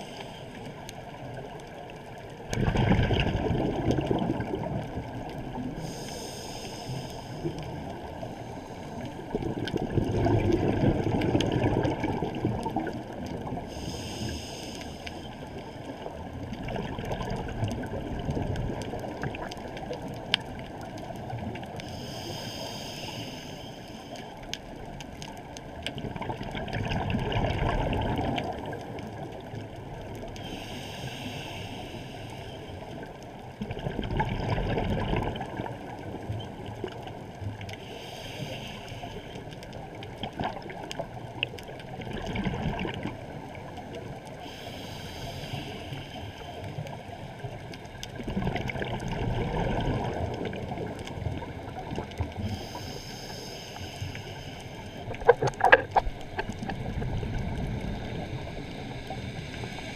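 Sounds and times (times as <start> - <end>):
steady underwater rumble: 0.0 - 59.9
exhaled bubbles bursting: 2.5 - 5.1, 9.4 - 13.0, 26.0 - 28.7, 33.6 - 35.8, 42.0 - 43.2, 48.2 - 52.3.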